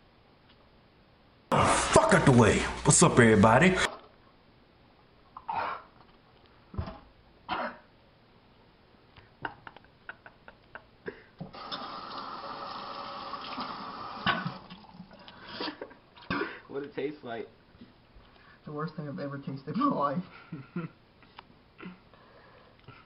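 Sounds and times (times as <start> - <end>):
man coughing and spluttering: 7.5 - 7.9, 14.2 - 14.7, 15.4 - 16.7
kitchen tap running: 11.5 - 15.4.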